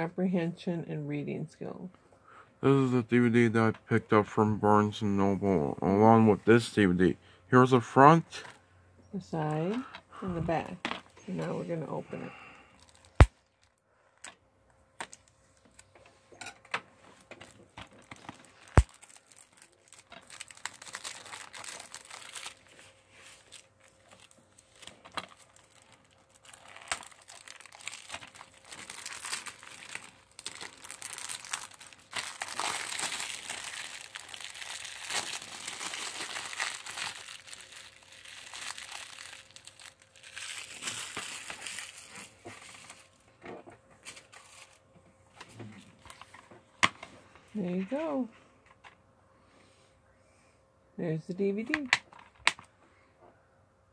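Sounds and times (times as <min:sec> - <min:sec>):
plastic film crinkling: 0:12.2 - 0:13.8, 0:17.1 - 0:43.2, 0:44.0 - 0:44.8.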